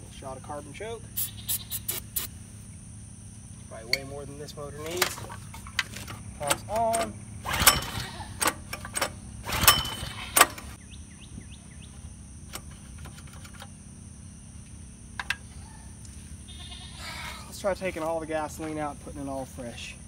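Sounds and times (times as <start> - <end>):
bird chirping: 1.0 - 2.3, 10.2 - 12.2
engine turning over: 4.7 - 10.8, 12.4 - 13.8
recoil starter pulls: 4.7 - 10.8, 12.5 - 13.8
sharp clicks: 4.9 - 10.8.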